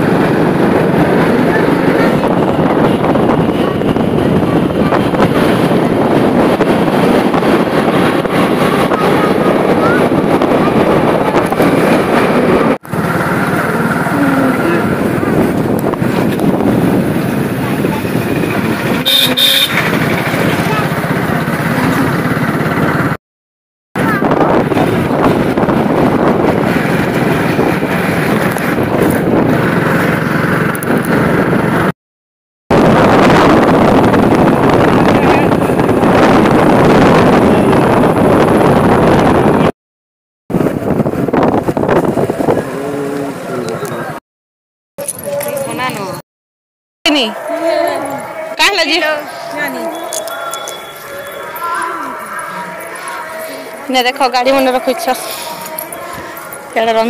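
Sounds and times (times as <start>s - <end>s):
motorbike engine running: 0.0s - 23.2s
road noise: 0.0s - 23.2s, 24.0s - 32.0s, 32.7s - 39.8s, 40.5s - 44.2s, 45.0s - 46.3s, 47.0s - 57.0s
wind rush on microphone: 0.0s - 23.2s, 24.0s - 31.9s, 32.7s - 39.7s, 40.5s - 44.2s.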